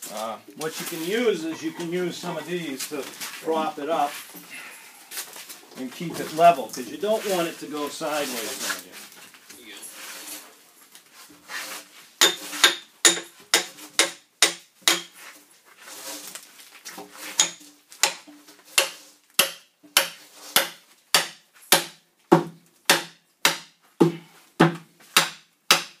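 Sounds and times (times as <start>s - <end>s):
quiet shuffling: 0.0s - 12.1s
axe chopping log: 12.2s - 15.1s, 17.4s - 26.0s.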